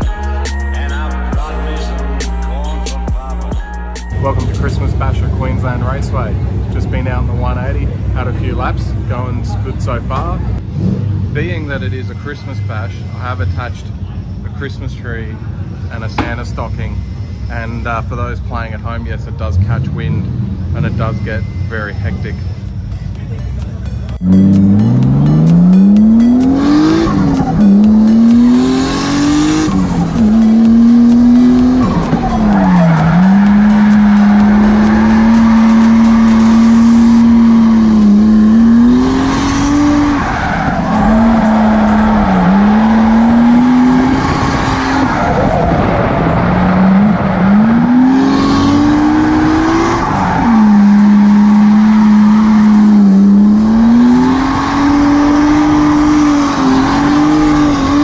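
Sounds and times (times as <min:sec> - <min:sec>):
car engine revving high: 0:00.0 - 0:14.1, 0:24.1 - 0:58.0
tyres squealing: 0:24.2 - 0:58.0.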